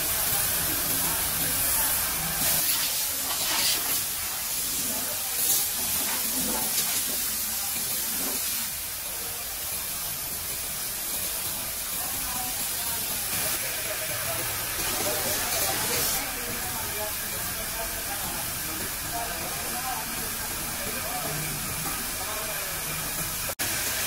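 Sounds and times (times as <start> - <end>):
air spray gun hissing: 0.0 - 8.8.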